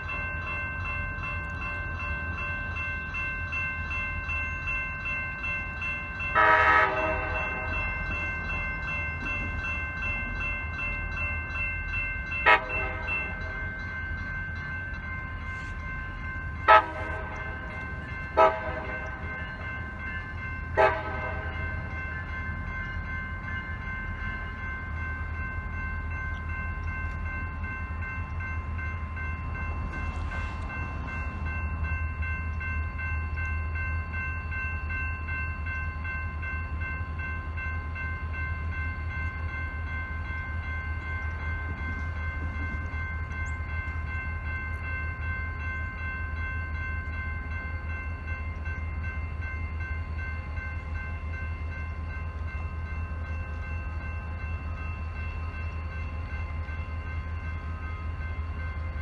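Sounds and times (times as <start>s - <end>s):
crossing warning bell ringing: 0.0s - 59.0s
diesel locomotives rumbling: 0.0s - 59.0s.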